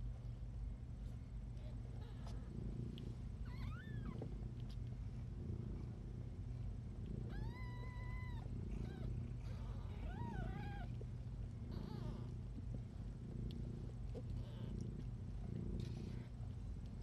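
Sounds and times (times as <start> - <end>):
steady low rumble: 0.0 - 17.0
cats mewing: 7.3 - 11.0.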